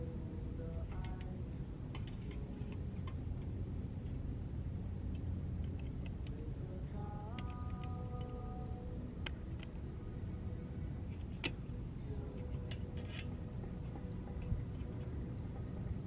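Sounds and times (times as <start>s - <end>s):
faint ticks: 7.3s - 8.6s.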